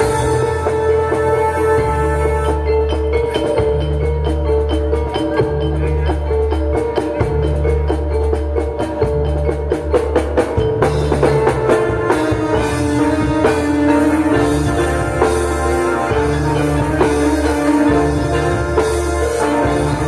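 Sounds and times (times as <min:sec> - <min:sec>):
drum strokes: 0:00.0 - 0:20.0.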